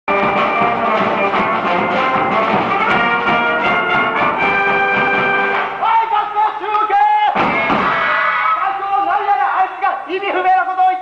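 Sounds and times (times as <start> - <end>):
brass band playing: 0.1 - 6.1.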